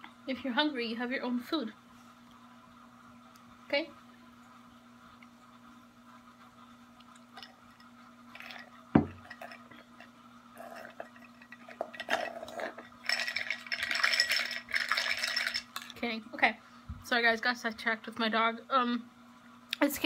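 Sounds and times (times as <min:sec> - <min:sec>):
straw clinking in glass: 0:07.4 - 0:15.9
glass knocked on hard surface: 0:09.0 - 0:09.4.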